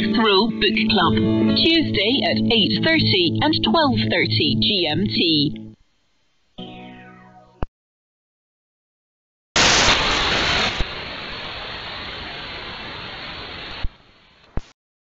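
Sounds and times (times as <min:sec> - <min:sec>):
radio static hiss: 0:09.6 - 0:14.8.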